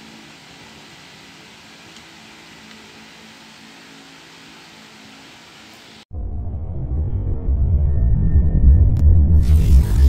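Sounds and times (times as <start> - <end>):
steady background hiss: 0.0 - 6.0.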